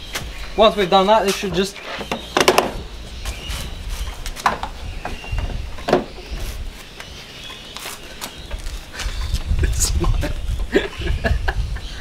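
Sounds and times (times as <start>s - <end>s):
plastic knocking against plastic: 2.0s - 2.8s.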